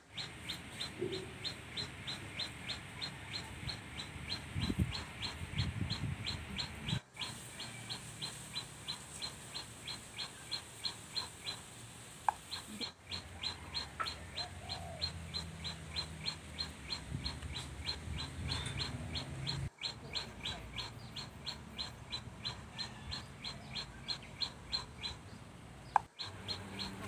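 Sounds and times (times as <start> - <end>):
rapid high chirps: 0.0 - 25.3, 26.0 - 27.0.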